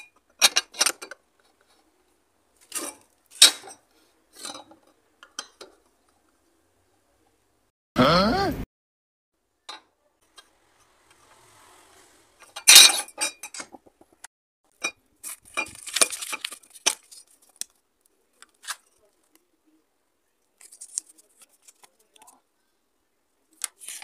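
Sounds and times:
paper rustling: 15.2 - 19.4, 20.6 - 22.4, 23.5 - 24.0.

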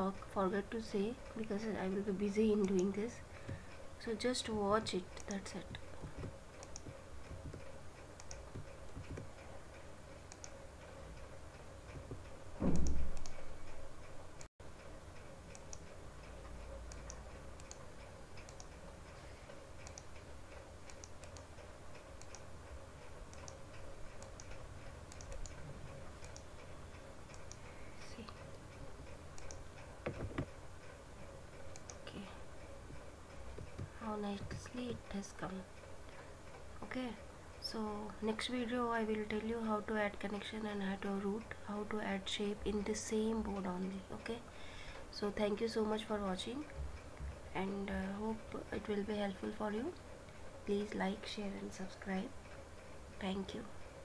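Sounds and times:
computer mouse clicking: 1.1 - 9.5, 10.2 - 10.6, 11.9 - 14.2, 15.2 - 18.8, 19.5 - 30.9, 31.5 - 35.3
low thump: 12.6 - 13.2.

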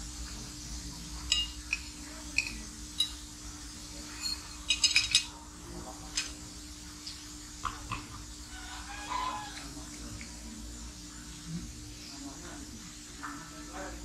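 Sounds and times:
cutlery clinking on plate: 1.3 - 3.2, 4.1 - 5.4.

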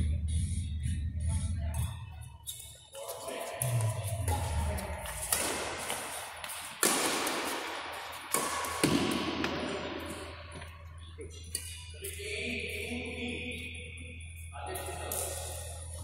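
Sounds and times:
racket hitting shuttlecock: 3.6 - 10.7.

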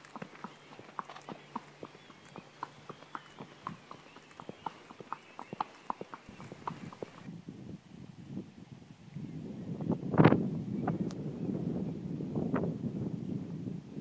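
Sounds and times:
horse hooves on pavement: 0.0 - 7.3.

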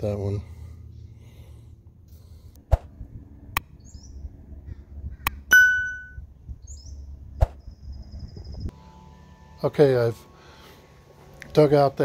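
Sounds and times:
faint birds chirping: 0.0 - 2.6, 3.6 - 5.5
bright bell ding: 5.5 - 6.2.

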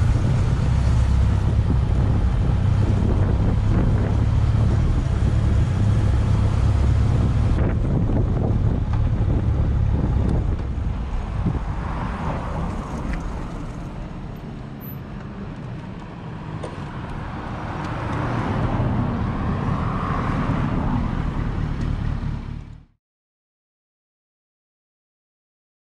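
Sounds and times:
wind rumble on microphone: 0.0 - 14.5.

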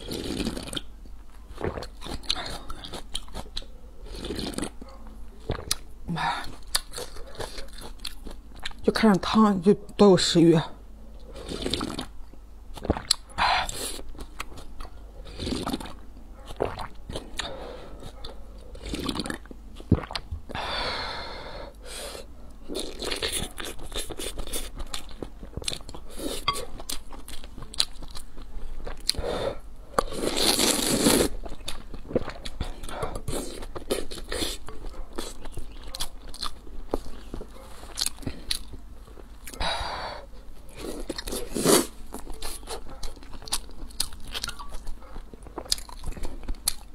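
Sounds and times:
slurping: 0.0 - 0.9, 1.6 - 4.8, 11.2 - 12.2, 15.2 - 18.1, 18.7 - 20.2, 30.0 - 35.6, 40.7 - 42.8
chewing noodles: 0.0 - 8.8, 11.2 - 20.3, 22.1 - 29.3, 29.9 - 39.6, 40.4 - 46.9.

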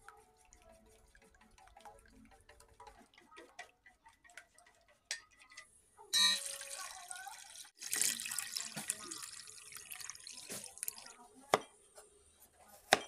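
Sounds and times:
chopsticks clicking against steel bowl: 0.0 - 5.7
liquid pouring and splashing: 6.2 - 11.3.

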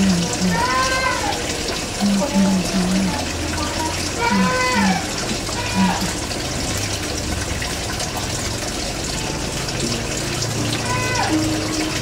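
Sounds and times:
calls falling in pitch: 10.8 - 11.6.

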